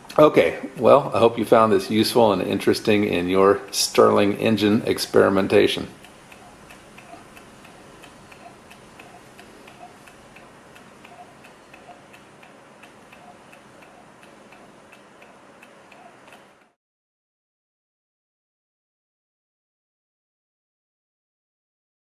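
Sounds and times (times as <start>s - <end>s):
stirling engine ticking softly: 0.8s - 16.8s.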